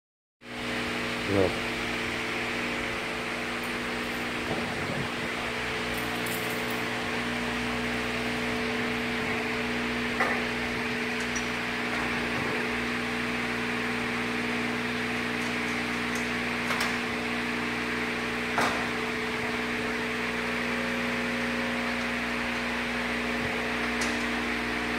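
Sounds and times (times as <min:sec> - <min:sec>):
mechanical hum: 0:00.4 - 0:24.9.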